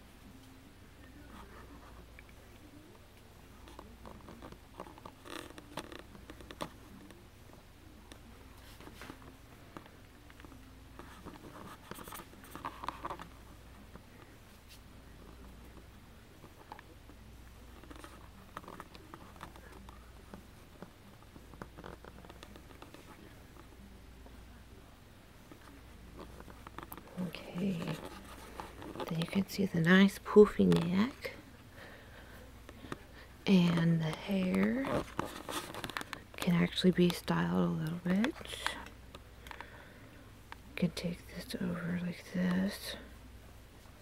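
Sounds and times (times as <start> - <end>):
low steady hum: 0.0 - 44.0
soft handling rustles: 0.2 - 44.0
handling clicks and rustles: 25.4 - 31.4, 32.6 - 39.8.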